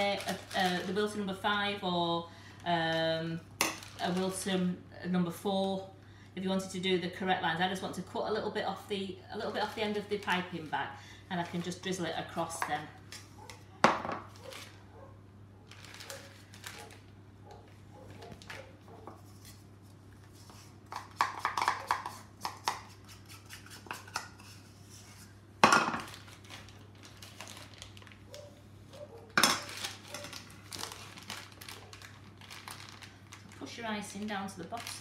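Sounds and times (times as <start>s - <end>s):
plastic bag crinkling: 0.0s - 1.7s, 2.6s - 4.6s, 9.4s - 12.4s, 14.3s - 14.8s, 15.7s - 19.6s, 26.0s - 35.0s.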